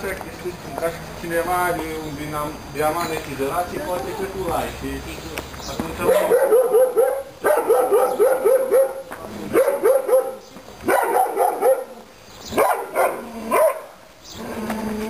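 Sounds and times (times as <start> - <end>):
dog barking: 6.0 - 14.0.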